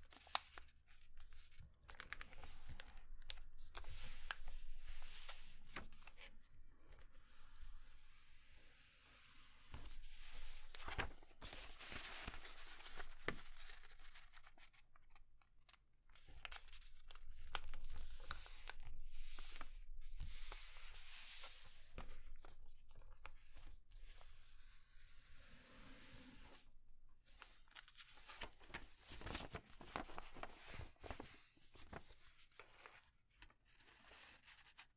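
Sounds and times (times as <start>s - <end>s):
paper rustling and crinkling: 0.0s - 6.3s, 9.7s - 15.2s, 27.3s - 34.9s.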